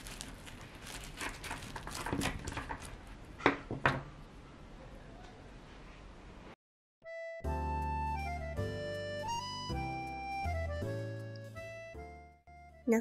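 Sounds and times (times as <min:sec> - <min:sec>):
pastry crackling and crunching: 0:00.0 - 0:03.2.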